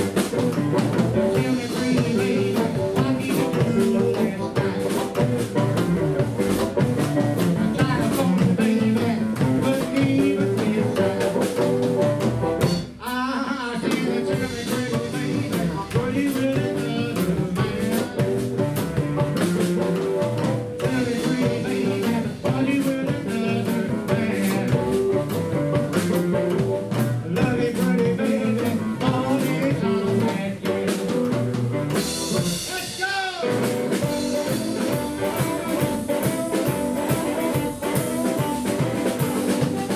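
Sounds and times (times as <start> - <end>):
man singing: 0.0 - 6.0, 7.0 - 19.8, 20.4 - 39.9
double bass: 0.0 - 13.0, 13.8 - 32.7
drum kit: 0.0 - 39.9
electric guitar: 0.0 - 39.9
harmonica: 34.0 - 39.9.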